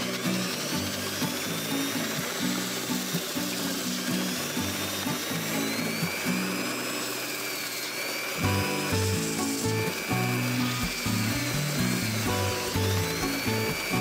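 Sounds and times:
drill press high whine: 0:00.0 - 0:14.0
wood against sanding belt: 0:00.0 - 0:14.0
background music: 0:08.4 - 0:14.0.

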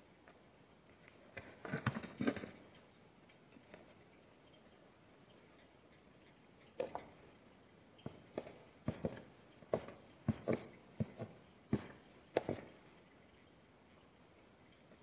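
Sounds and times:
hooves knocking on hard ground: 0:08.0 - 0:13.2.

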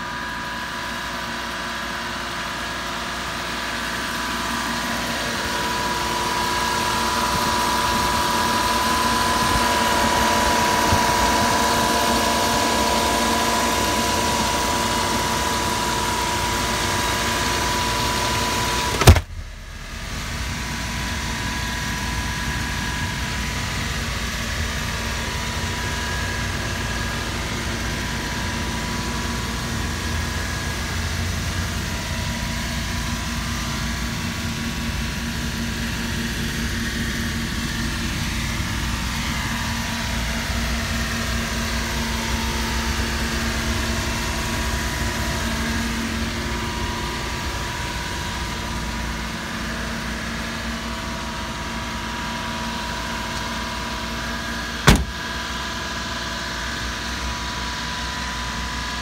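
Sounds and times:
small engine idling: 0:00.0 - 0:59.0
sharp knock: 0:18.9 - 0:19.6, 0:54.9 - 0:55.2.

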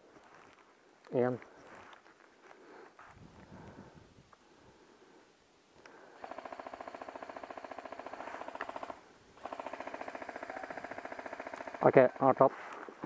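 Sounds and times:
airsoft gun full-auto bursts: 0:06.2 - 0:12.4.

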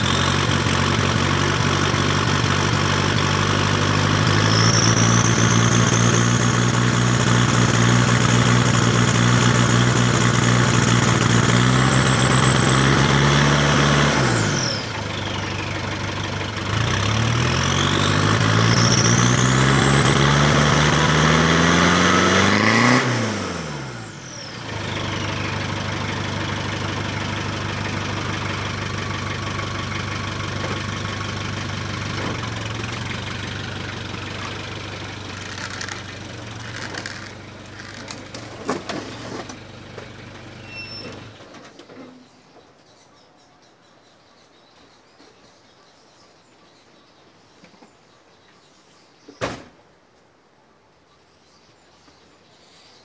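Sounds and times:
diesel engine revving and idling: 0:00.0 - 0:41.4.

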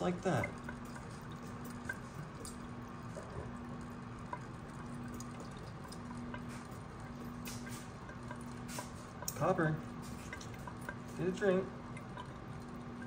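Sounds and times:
faint steady hum: 0:00.0 - 0:13.0
faucet water running into sink: 0:00.0 - 0:13.0.

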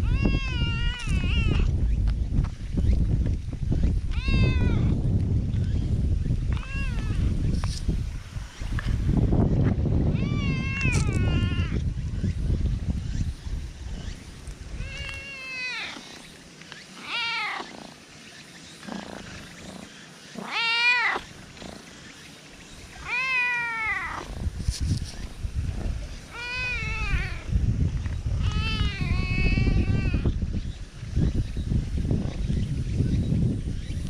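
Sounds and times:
cat meowing: 0:00.0 - 0:01.7, 0:04.1 - 0:04.9, 0:06.5 - 0:07.2, 0:10.2 - 0:11.8, 0:14.8 - 0:16.1, 0:17.0 - 0:17.7, 0:20.4 - 0:21.3, 0:23.0 - 0:24.3, 0:26.3 - 0:27.5, 0:28.4 - 0:30.3.

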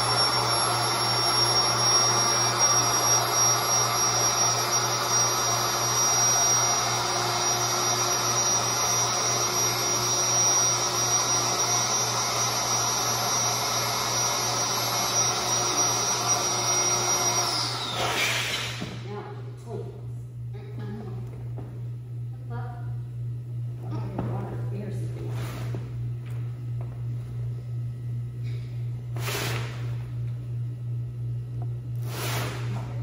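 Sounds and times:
electric air pump whining: 0:00.0 - 0:19.3, 0:23.9 - 0:27.3, 0:28.4 - 0:30.4, 0:31.8 - 0:33.0.

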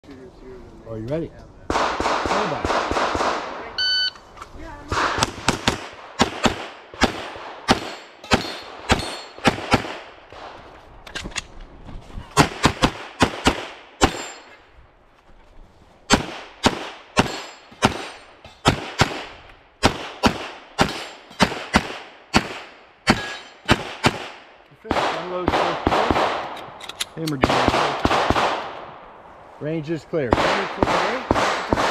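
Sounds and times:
pistol shots: 0:01.7 - 0:03.6, 0:04.9 - 0:10.5, 0:12.4 - 0:14.5, 0:16.1 - 0:26.6, 0:27.3 - 0:28.8, 0:30.3 - 0:31.9.

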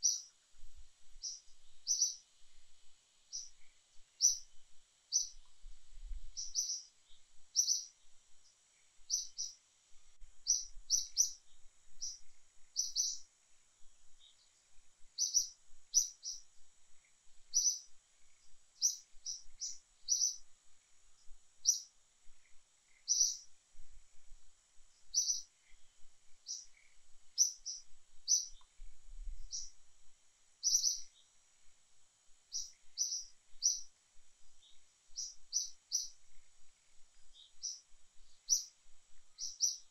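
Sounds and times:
birds chirping: 0:00.0 - 0:00.3, 0:01.2 - 0:02.2, 0:03.3 - 0:04.5, 0:05.1 - 0:05.5, 0:06.3 - 0:08.2, 0:08.8 - 0:09.6, 0:10.4 - 0:13.3, 0:15.2 - 0:20.4, 0:21.6 - 0:23.5, 0:25.0 - 0:28.8, 0:29.4 - 0:29.8, 0:30.6 - 0:31.3, 0:32.5 - 0:33.9, 0:34.6 - 0:38.7, 0:39.4 - 0:39.9
high-pitched background hum: 0:00.0 - 0:39.9.

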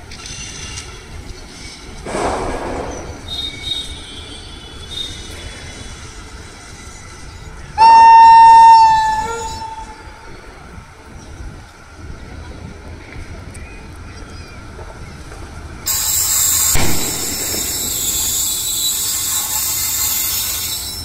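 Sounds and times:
locomotive air horn blast: 0:07.8 - 0:10.2.

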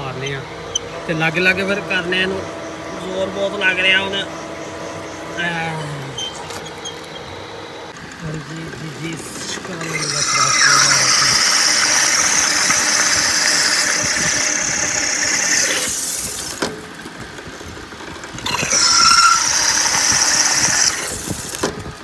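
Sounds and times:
drill squealing through metal: 0:06.1 - 0:07.4, 0:09.4 - 0:16.6, 0:18.3 - 0:21.7.

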